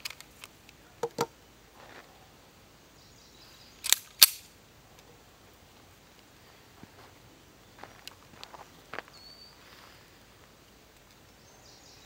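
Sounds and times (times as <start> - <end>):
pistol light clicks: 3.8 - 4.4
pistol slide clacks: 3.8 - 4.5.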